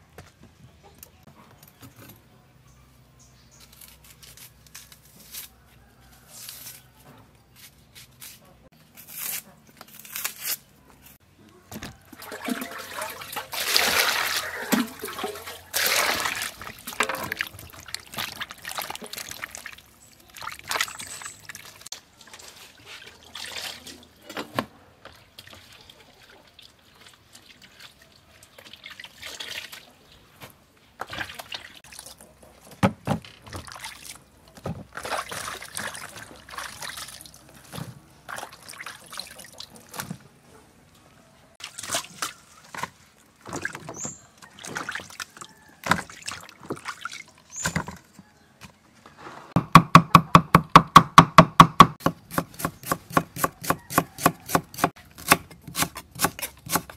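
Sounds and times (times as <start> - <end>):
water sloshing in a bowl: 11.8 - 24.4, 25.0 - 30.4, 31.0 - 40.3, 41.6 - 48.1.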